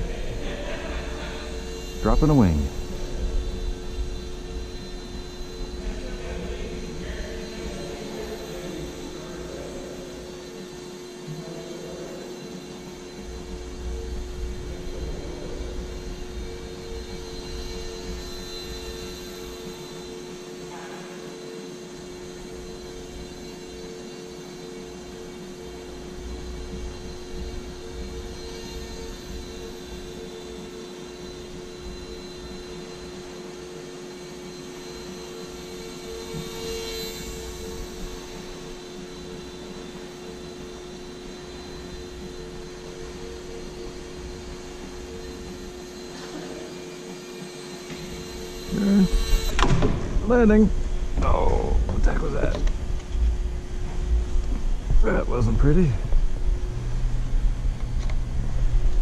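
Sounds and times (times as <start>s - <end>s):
small electric motor and propeller drone: 0.0s - 59.0s.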